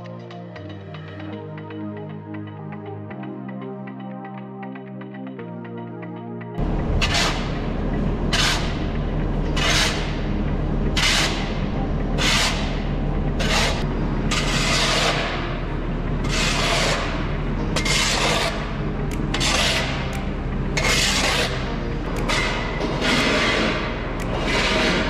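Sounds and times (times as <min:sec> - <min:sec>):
shovel scraping on concrete: 0:07.0 - 0:07.5, 0:08.3 - 0:08.7, 0:09.6 - 0:10.1, 0:12.2 - 0:12.7, 0:13.4 - 0:15.3, 0:16.2 - 0:17.2, 0:17.8 - 0:18.6, 0:19.3 - 0:20.2, 0:20.8 - 0:21.6, 0:22.3 - 0:25.0.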